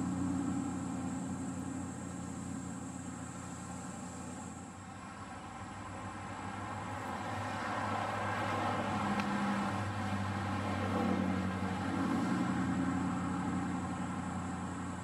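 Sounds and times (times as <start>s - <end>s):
low mechanical hum: 0.0s - 7.2s.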